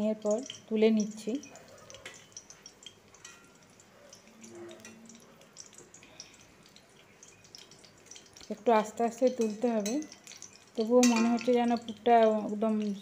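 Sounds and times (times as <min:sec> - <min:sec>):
food sizzling in oil: 0:00.0 - 0:13.0
oil crackling and popping: 0:00.0 - 0:13.0.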